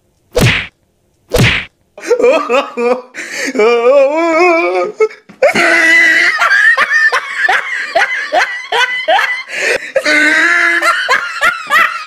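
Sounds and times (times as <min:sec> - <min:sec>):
person laughing: 0:02.0 - 0:04.8, 0:05.4 - 0:12.0.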